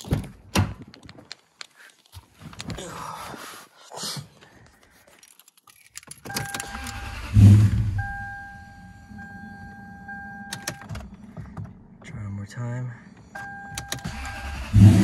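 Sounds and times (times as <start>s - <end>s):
keys rattling: 4.7s - 7.1s
engine starter cranking: 6.3s - 8.0s, 13.8s - 15.0s
car warning chime: 6.3s - 11.4s, 12.0s - 14.8s.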